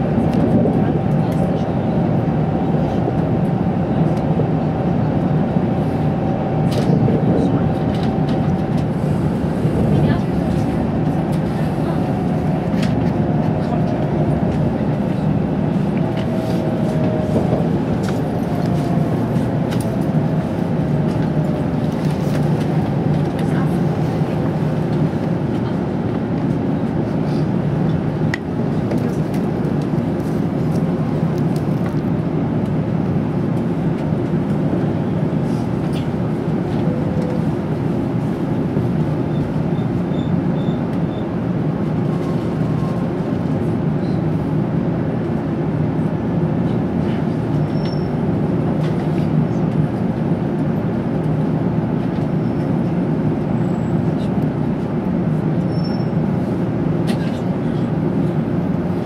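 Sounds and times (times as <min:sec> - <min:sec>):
train running rumble inside cabin: 0:00.0 - 0:59.0.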